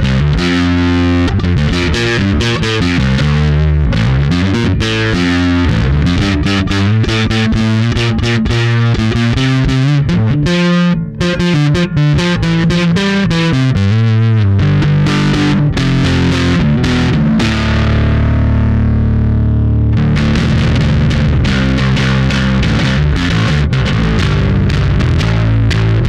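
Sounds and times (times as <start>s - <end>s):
distorted electric bass notes: 0.0s - 26.0s.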